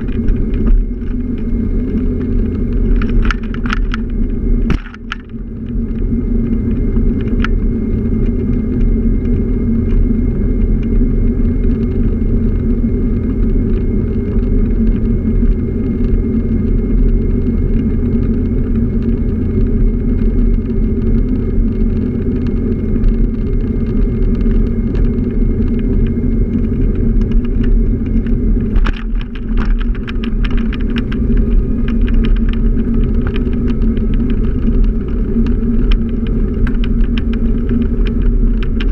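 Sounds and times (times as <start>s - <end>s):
scooter rumbling along road: 0.0s - 38.9s
light rattling clicks: 2.2s - 6.0s.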